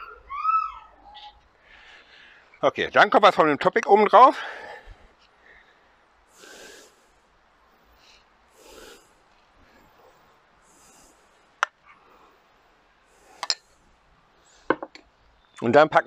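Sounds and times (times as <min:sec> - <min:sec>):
soft breaths: 0:01.0 - 0:02.6, 0:04.2 - 0:15.4.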